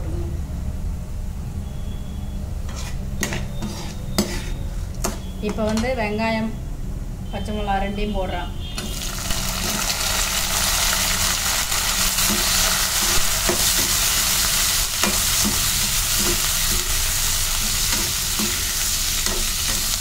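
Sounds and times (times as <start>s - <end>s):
steel skimmer scraping pan: 2.6s - 5.2s
vegetables sizzling in hot oil: 8.8s - 20.0s.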